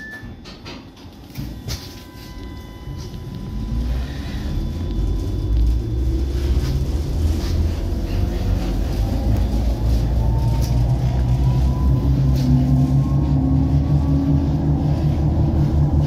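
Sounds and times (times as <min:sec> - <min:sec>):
tram wheels rumbling: 0:00.0 - 0:16.0
electric motor whine rising: 0:03.2 - 0:16.0.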